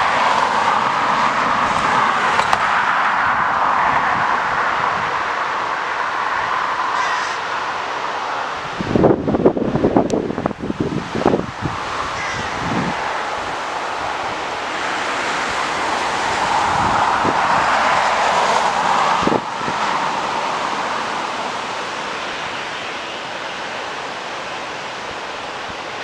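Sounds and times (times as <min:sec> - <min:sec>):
jet airliner engine taxiing: 0:00.0 - 0:07.0
wind rushing over microphone: 0:00.0 - 0:26.0.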